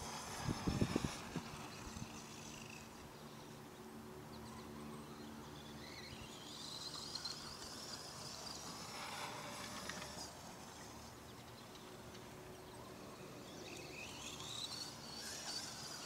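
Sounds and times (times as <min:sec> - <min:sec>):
distant rc truck motor whining: 0:00.0 - 0:16.0.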